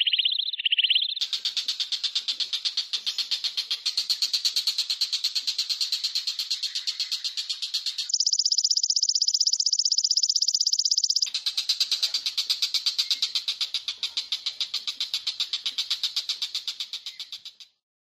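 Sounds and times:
high-pitched pulsing chirps: 0.0s - 1.2s, 7.1s - 11.4s.

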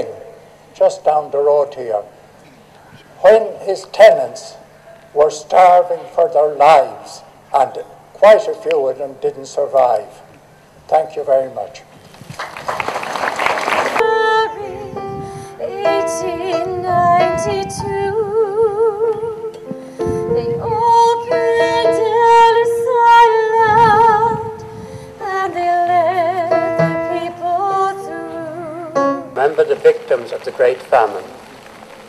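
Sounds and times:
woman singing with vibrato: 13.9s - 29.2s
instrumental accompaniment: 14.0s - 30.1s.

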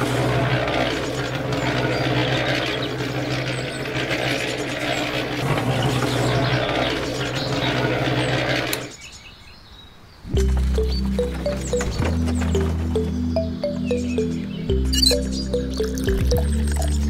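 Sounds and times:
toy motor whirring: 0.0s - 9.0s.

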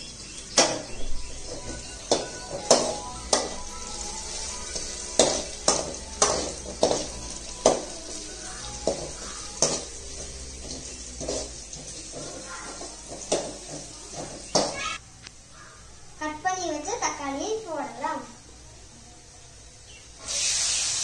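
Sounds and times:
ladle stirring onions: 0.1s - 14.8s
ladle knocking pan: 0.6s - 3.8s, 4.8s - 8.2s, 8.8s - 14.8s.

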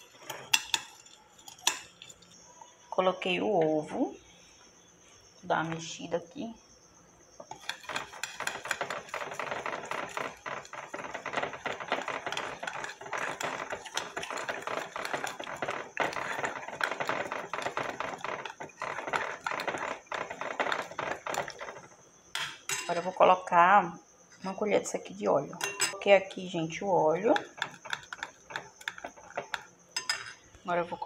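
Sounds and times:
spoon clinking against glass bowl: 25.6s - 26.0s, 30.0s - 30.4s.

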